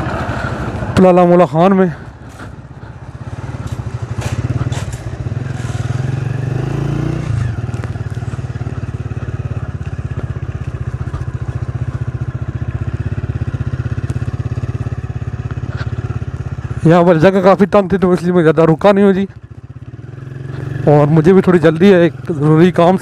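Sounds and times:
vehicle engine running: 0:00.0 - 0:23.0
knocks and rattles: 0:03.6 - 0:05.3.

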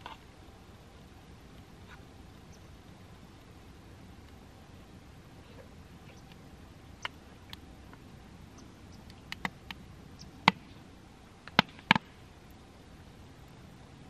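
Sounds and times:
wood fire crackling and popping: 0:09.0 - 0:10.8.

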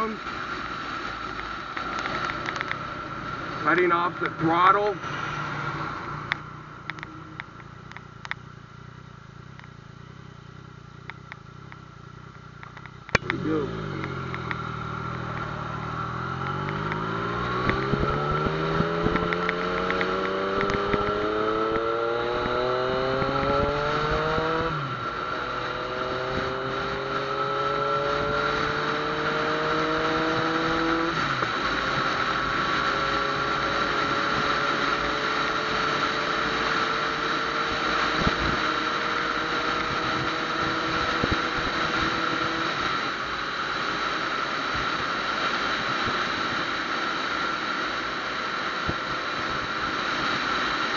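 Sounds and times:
motorcycle engine accelerating: 0:00.0 - 0:50.9
wind rushing: 0:14.2 - 0:27.3.

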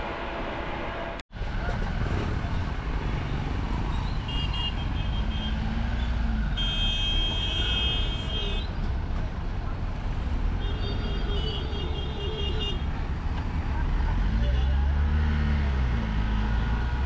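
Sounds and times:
engine and tyre rumble: 0:00.0 - 0:17.0
loud horn blast: 0:06.6 - 0:08.7.

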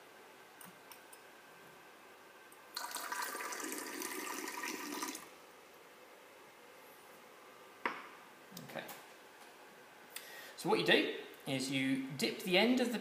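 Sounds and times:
tap water running into plastic container: 0:02.8 - 0:05.3.

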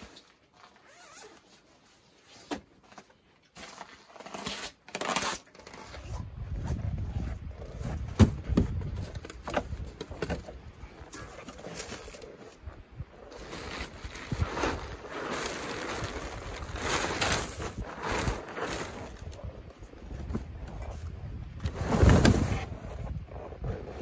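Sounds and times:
clothing rustling: 0:13.2 - 0:19.3.

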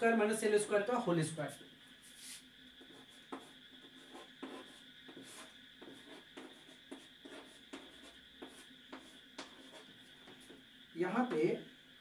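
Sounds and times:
faint steady hum: 0:00.0 - 0:12.0
chalk tapping and scratching: 0:02.1 - 0:11.5.

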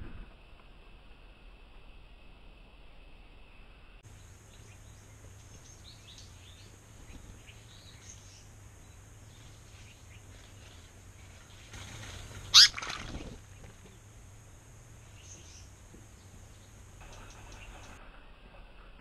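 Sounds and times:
small birds chirping: 0:04.0 - 0:18.0.

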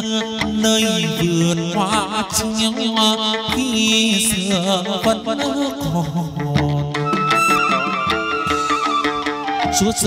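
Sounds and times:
sharp percussion strikes: 0:00.0 - 0:10.0
wavering melody: 0:07.0 - 0:10.0.

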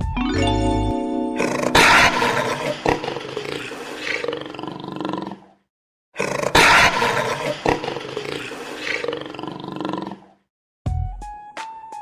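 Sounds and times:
tiger roaring: 0:01.7 - 0:05.5.

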